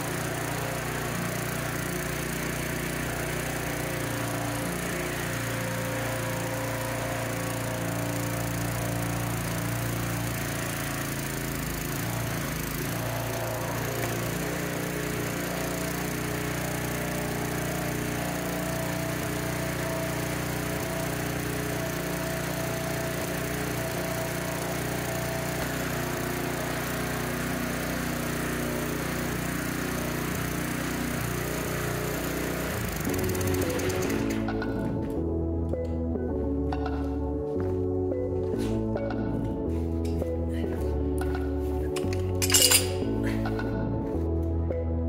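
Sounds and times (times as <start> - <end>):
small gasoline engine running: 0.0 - 35.4, 38.9 - 44.1.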